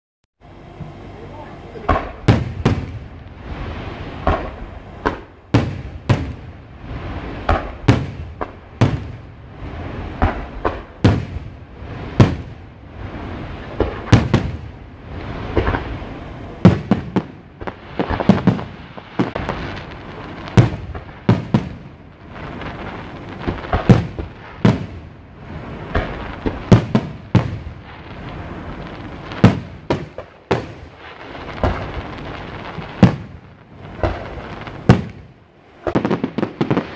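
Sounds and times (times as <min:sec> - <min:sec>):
firework shells bursting: 0:04.1 - 0:06.6, 0:15.3 - 0:25.0, 0:25.8 - 0:36.9.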